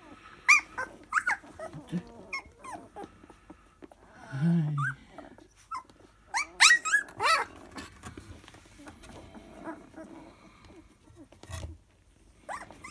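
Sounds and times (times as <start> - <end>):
puppies whining and yelping: 0.0 - 4.1, 4.8 - 12.9
puppy low growl: 0.0 - 11.8.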